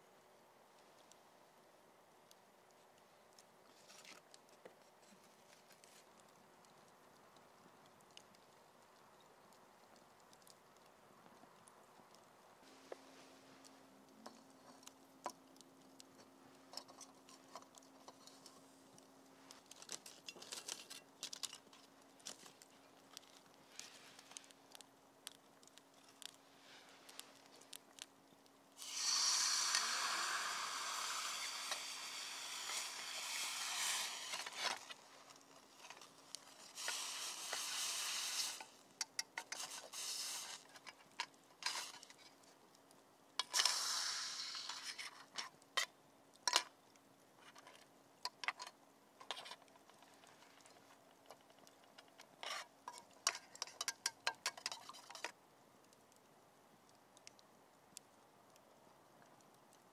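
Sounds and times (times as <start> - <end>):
hand tool scraping: 28.8 - 40.9
light clicks and taps: 56.9 - 59.9.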